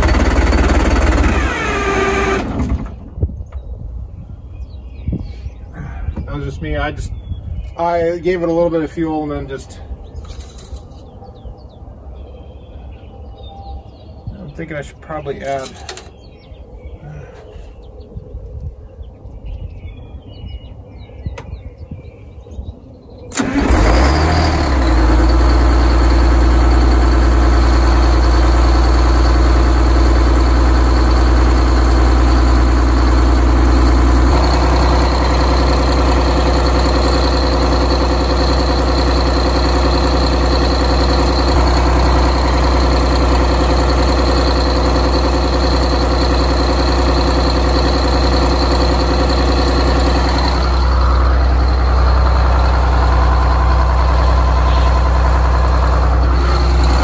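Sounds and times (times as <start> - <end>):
diesel engine starting and idling: 0.0 - 3.6, 23.2 - 57.0.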